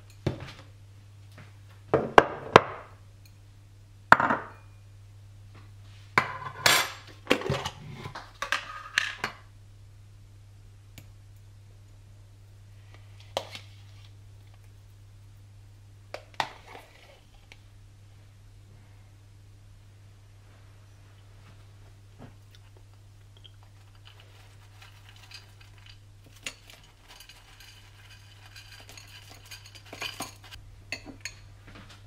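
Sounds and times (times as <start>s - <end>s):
steady low hum: 0.0s - 32.0s
dishes and utensils clattering: 23.6s - 31.5s.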